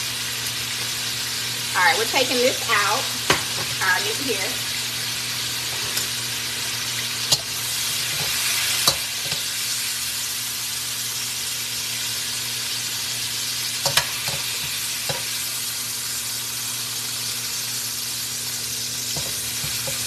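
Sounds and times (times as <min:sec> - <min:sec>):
meat sizzling in hot oil: 0:00.0 - 0:20.0
metal tongs clicking on pan: 0:07.3 - 0:07.5, 0:08.2 - 0:09.5, 0:13.8 - 0:14.5.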